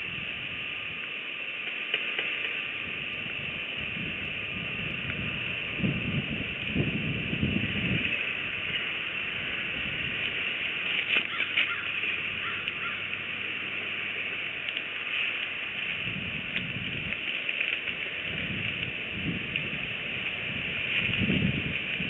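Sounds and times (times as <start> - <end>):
high outdoor hiss: 0.0 - 22.0
eagle wingbeats: 6.4 - 22.0
sticks rustling in nest: 10.8 - 13.0.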